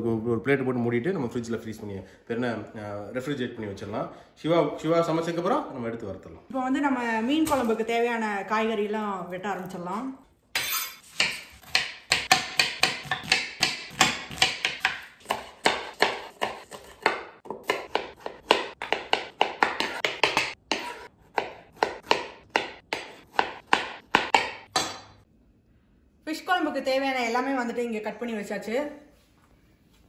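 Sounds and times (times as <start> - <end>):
knife chopping on wooden board: 11.0 - 25.1.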